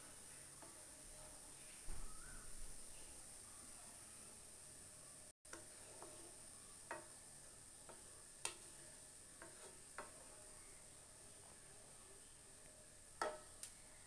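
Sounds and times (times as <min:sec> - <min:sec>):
wooden spatula scraping a pan: 0:05.5 - 0:07.2, 0:07.8 - 0:11.7.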